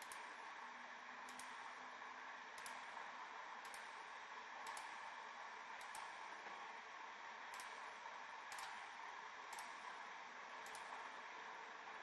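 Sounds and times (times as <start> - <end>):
computer mouse clicks: 0.0 - 0.3, 1.3 - 1.6, 2.6 - 3.0, 3.6 - 4.0, 4.6 - 5.0, 5.8 - 6.2, 7.5 - 7.9, 8.5 - 8.9, 9.5 - 9.9, 10.6 - 11.0.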